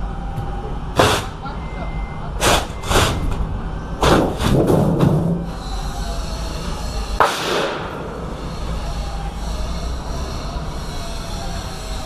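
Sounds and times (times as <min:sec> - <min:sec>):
sheet panel slap: 0:04.0 - 0:05.3, 0:07.2 - 0:07.9.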